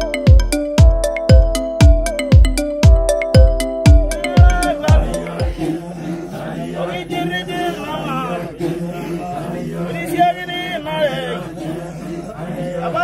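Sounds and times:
men chanting together: 4.2s - 13.0s.

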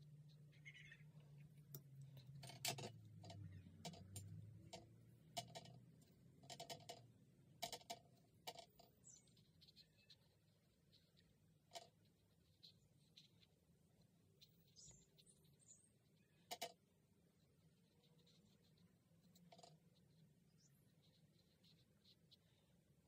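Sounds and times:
light clicks of paint tin: 1.6s - 8.9s.

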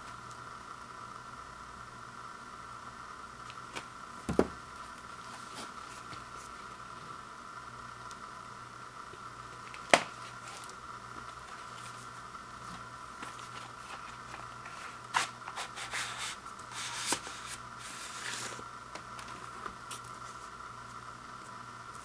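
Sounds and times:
record sleeve rustling and scraping: 3.7s - 6.7s, 9.5s - 21.0s.

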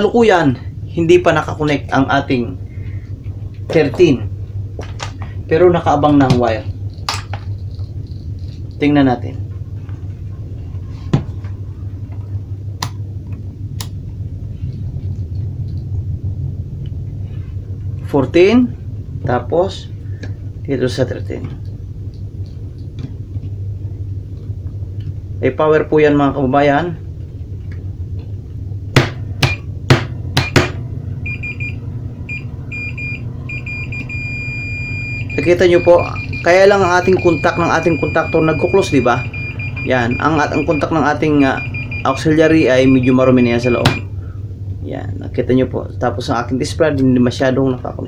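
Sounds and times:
steady low hum: 0.0s - 48.0s
stuttering multimeter beeps: 31.2s - 44.1s.

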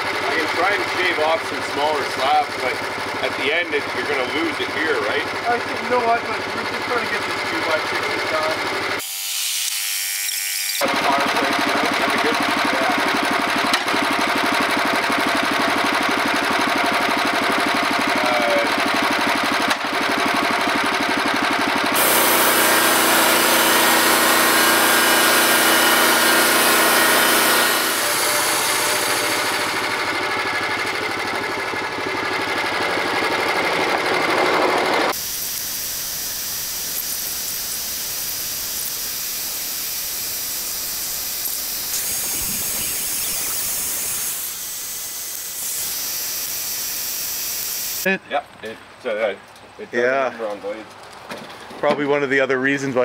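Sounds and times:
sawmill engine running: 0.0s - 9.2s, 10.8s - 48.1s
band blade sawing log: 22.0s - 30.9s.

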